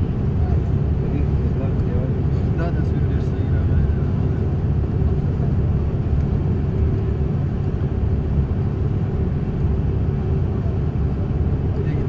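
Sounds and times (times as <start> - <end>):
road and engine rumble in vehicle: 0.0 - 12.0.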